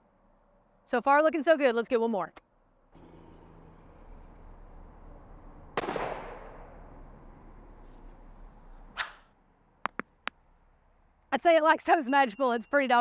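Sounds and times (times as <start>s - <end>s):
rifle shot with echo: 5.8s - 6.7s.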